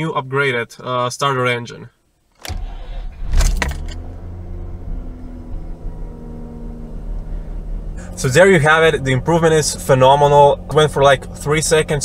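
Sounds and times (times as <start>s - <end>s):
starter motor cranking: 2.4s - 6.2s
rotary engine idling: 2.5s - 12.0s.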